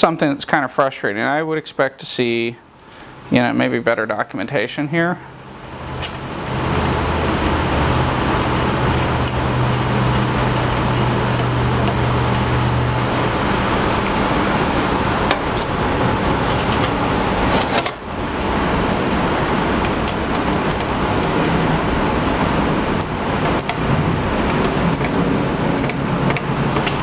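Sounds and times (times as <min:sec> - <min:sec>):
low hum: 0:05.3 - 0:27.0
loud machine rushing noise: 0:05.6 - 0:27.0.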